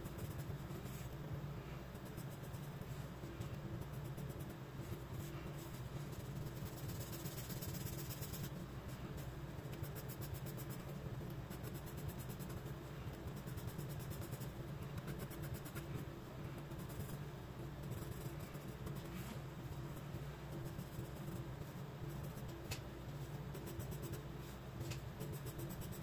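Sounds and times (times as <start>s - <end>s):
pencil scratching on paper: 3.8s - 8.6s, 9.7s - 17.2s, 17.8s - 22.5s, 25.2s - 26.0s.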